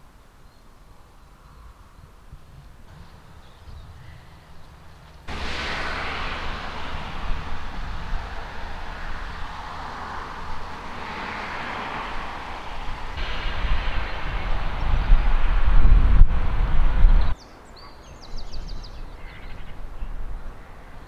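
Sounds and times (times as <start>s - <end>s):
wind buffeting microphone: 1.6s - 17.4s.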